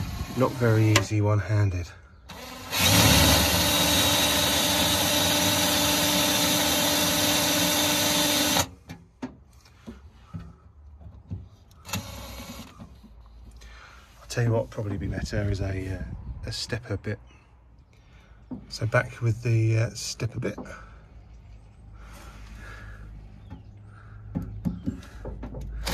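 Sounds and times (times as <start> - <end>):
cordless drill drilling sheet metal: 0.0 - 1.1, 2.3 - 8.8, 11.8 - 12.7.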